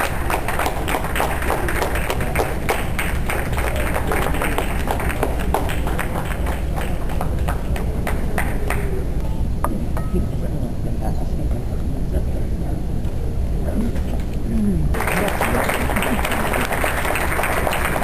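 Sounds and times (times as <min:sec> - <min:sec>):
audience clapping: 0:00.0 - 0:09.1, 0:15.0 - 0:18.0.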